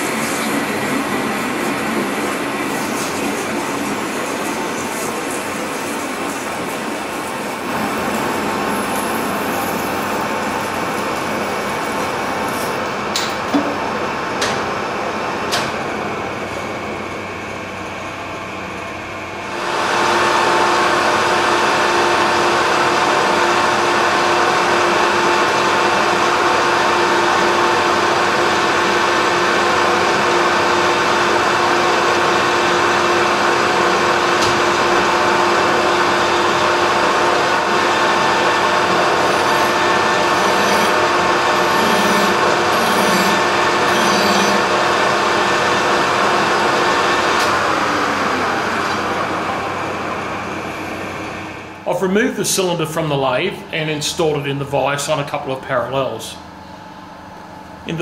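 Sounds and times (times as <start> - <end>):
metal lathe cutting steel: 19.8 - 49.6.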